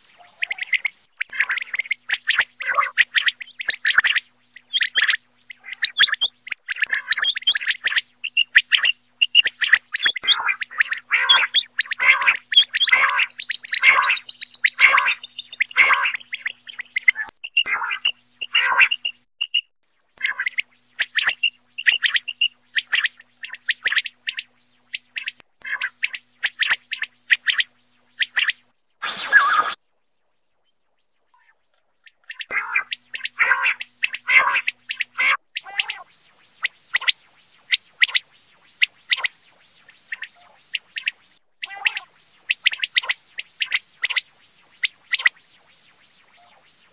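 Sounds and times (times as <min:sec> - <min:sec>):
quail rasping call: 0:00.0 - 0:19.2, 0:20.2 - 0:29.8, 0:31.4 - 0:45.4, 0:46.2 - 0:46.9.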